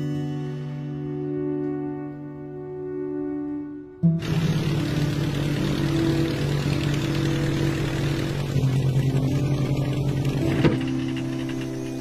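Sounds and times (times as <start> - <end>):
soft background music: 0.0 - 12.0
propeller aircraft engine running: 4.1 - 12.0.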